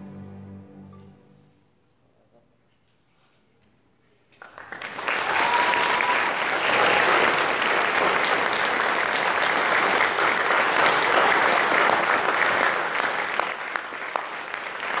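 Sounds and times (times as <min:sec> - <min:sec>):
audience applauding: 0:04.4 - 0:15.0.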